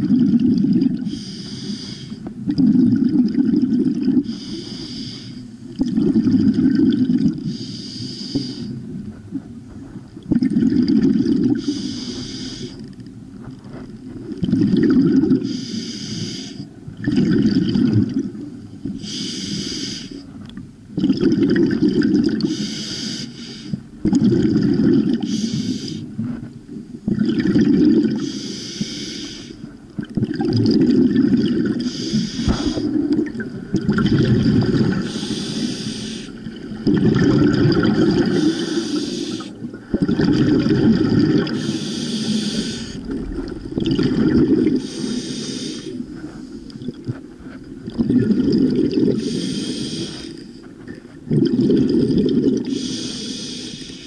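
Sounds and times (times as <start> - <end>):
exhaled bubbles rumbling: 0.0 - 1.2, 2.2 - 4.5, 5.6 - 7.7, 8.4 - 15.6, 16.6 - 19.2, 20.2 - 22.6, 23.8 - 28.5, 29.6 - 52.9
regulator inhale hiss: 1.0 - 2.2, 4.2 - 5.6, 7.4 - 8.8, 11.6 - 12.9, 15.4 - 16.7, 19.0 - 20.2, 22.4 - 23.8, 25.2 - 26.1, 28.2 - 29.7, 31.8 - 33.0, 34.9 - 36.4, 38.2 - 39.6, 41.5 - 43.1, 44.8 - 46.8, 49.2 - 50.6, 52.7 - 54.0.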